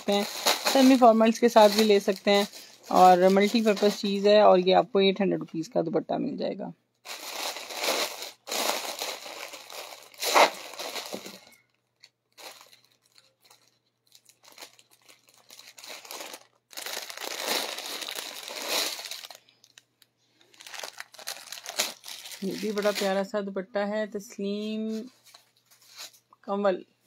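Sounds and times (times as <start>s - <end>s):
plastic bags crinkling: 0.0s - 4.8s, 7.0s - 23.3s.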